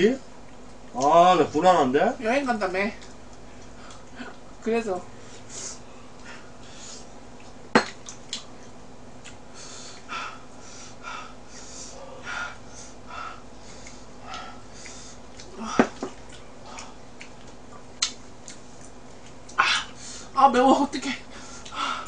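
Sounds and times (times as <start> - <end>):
chewing and mouth noises: 7.3 - 10.1, 13.6 - 20.0.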